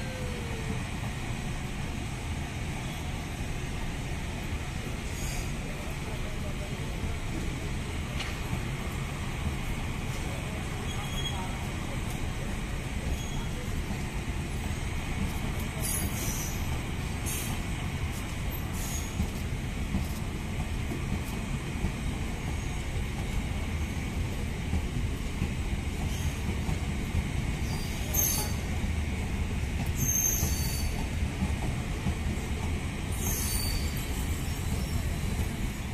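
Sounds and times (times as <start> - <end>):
train wheels rumbling on rails: 0.0 - 35.9
high-pitched wheel squeals: 33.2 - 35.0.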